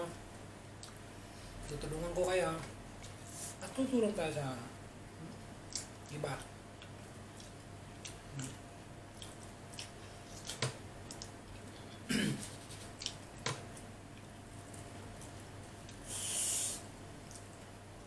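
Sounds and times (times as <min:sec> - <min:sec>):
man eating: 0:05.2 - 0:17.8
throat clearing: 0:12.0 - 0:12.5
brief hiss: 0:16.1 - 0:16.8.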